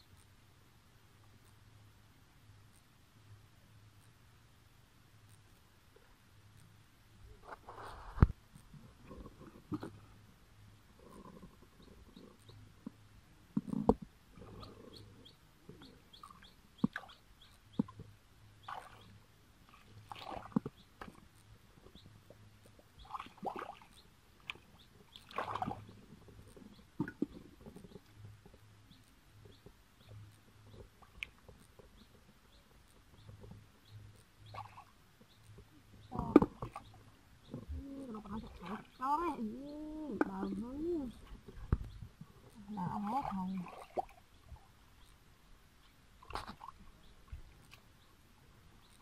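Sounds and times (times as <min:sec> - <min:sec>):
small bird chirping: 0:11.0 - 0:12.7, 0:13.6 - 0:19.2, 0:20.6 - 0:43.6, 0:44.3 - 0:45.2
feet wading through water: 0:18.6 - 0:21.2, 0:23.0 - 0:26.0, 0:42.9 - 0:44.7
hands squelching in muddy water: 0:25.2 - 0:25.9
person speaking: 0:37.6 - 0:41.3, 0:42.6 - 0:43.7.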